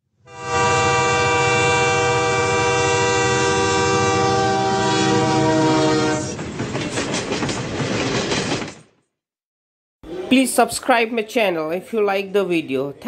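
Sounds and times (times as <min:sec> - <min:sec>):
train horn blast: 0:00.2 - 0:06.4
train rumbling: 0:00.5 - 0:08.9.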